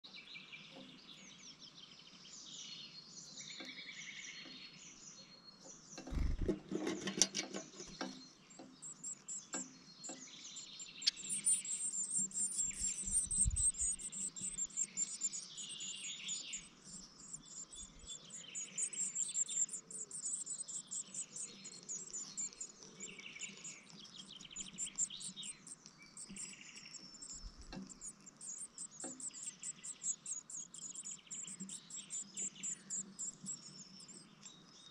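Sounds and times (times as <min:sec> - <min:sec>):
bird scraping and bumping in box: 0:06.1 - 0:08.0
nestlings cheeping: 0:10.6 - 0:34.3.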